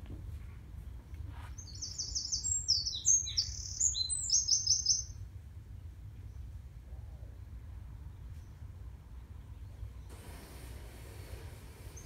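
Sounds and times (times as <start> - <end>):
small songbird singing: 0.9 - 10.1.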